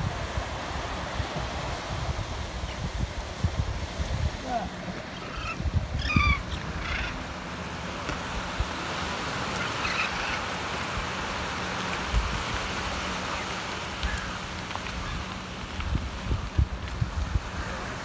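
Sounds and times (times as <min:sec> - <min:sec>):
surf washing onto sand: 0:00.0 - 0:18.0
wind rumbling on microphone: 0:00.0 - 0:18.0
chirping bird calls: 0:05.1 - 0:07.2.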